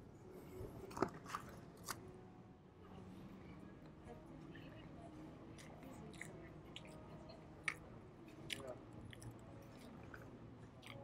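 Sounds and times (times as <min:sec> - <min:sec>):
person chewing food: 0:08.5 - 0:11.0.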